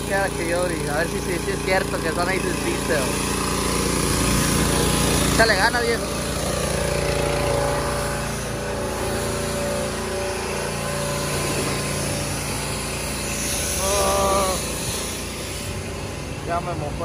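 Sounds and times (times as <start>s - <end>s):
pressure washer engine running: 0.0s - 17.0s
spray hissing: 6.1s - 16.3s
short voice-like cry: 13.8s - 14.8s.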